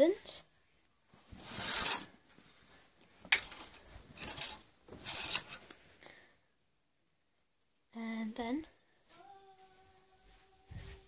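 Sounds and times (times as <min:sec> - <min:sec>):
cloth rubbing and scraping: 0:01.1 - 0:03.0, 0:03.8 - 0:06.0, 0:09.1 - 0:11.0.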